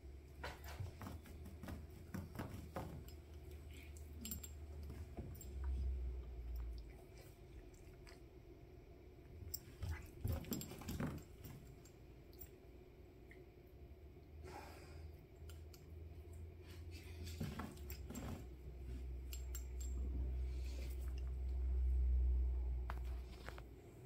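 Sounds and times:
kitten scuffling and clicking: 0.4s - 8.2s
low hum: 15.4s - 24.0s.

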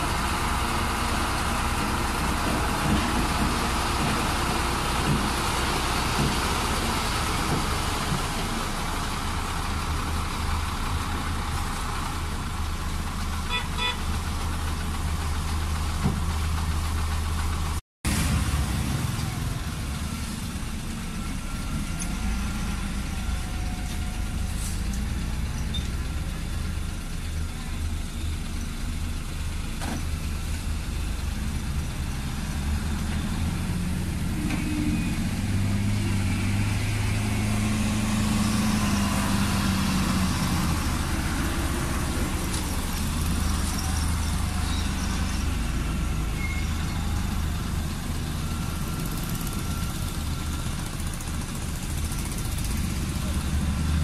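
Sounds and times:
construction machinery working: 0.0s - 54.0s
diesel truck engines rumbling: 0.0s - 54.0s.

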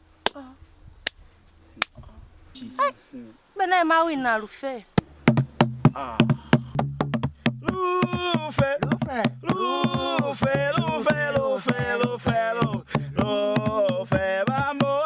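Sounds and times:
percussive clicks beat: 5.0s - 15.0s
person singing: 7.6s - 15.0s.

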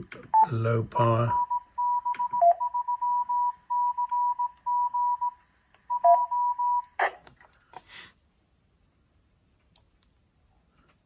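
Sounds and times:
morse code beeps: 0.4s - 6.9s.

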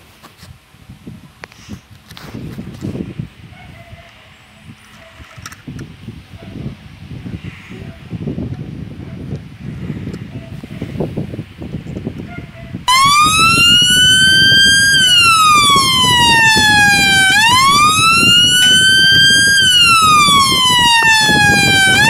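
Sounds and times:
siren wailing: 12.9s - 22.0s.

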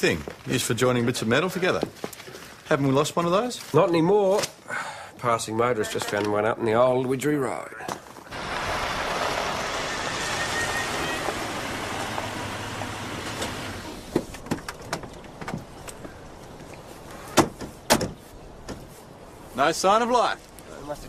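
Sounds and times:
tyres on gravel: 7.9s - 21.0s
car engine running: 8.3s - 14.1s.

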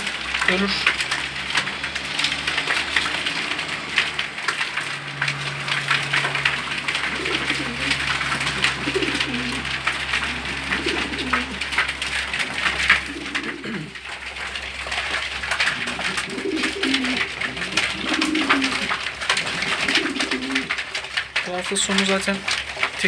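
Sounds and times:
pigeons cooing: 0.0s - 21.2s
wings flapping: 0.0s - 23.0s
beaks pecking on cardboard: 6.5s - 20.8s.

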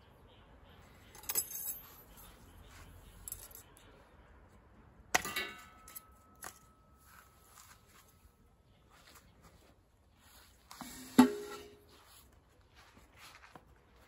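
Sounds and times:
sharp metallic clang: 1.0s - 2.3s, 5.1s - 7.0s, 10.9s - 11.9s.

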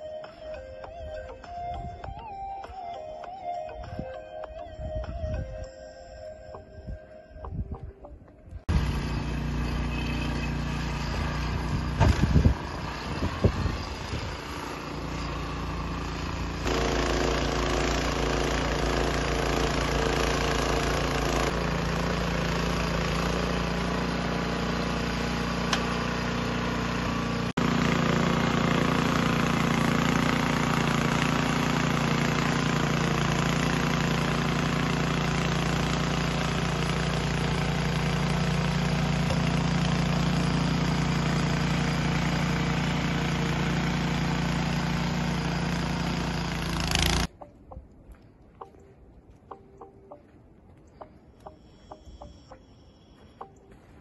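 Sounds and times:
snowblower engine running: 8.6s - 47.3s.

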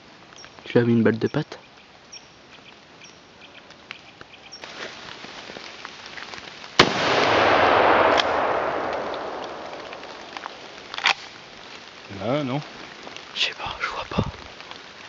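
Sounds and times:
rifle shot: 6.8s - 11.2s.

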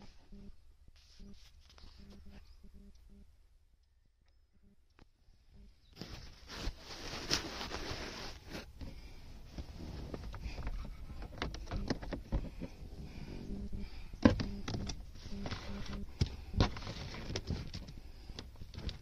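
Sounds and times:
hands rustling wiring: 5.9s - 19.0s.

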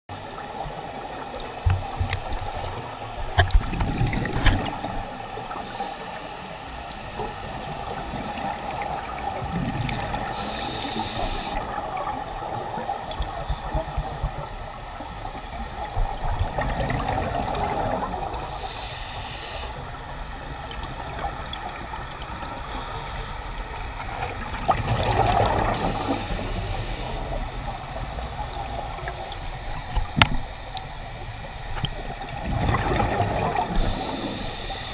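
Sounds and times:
exhalation bubbles rushing: 3.5s - 5.1s, 24.6s - 26.0s, 32.4s - 34.1s
diver breathing through regulator: 5.5s - 7.3s, 7.9s - 9.1s, 10.2s - 11.7s, 18.3s - 19.9s, 22.5s - 24.0s, 25.6s - 27.4s, 33.6s - 34.9s.

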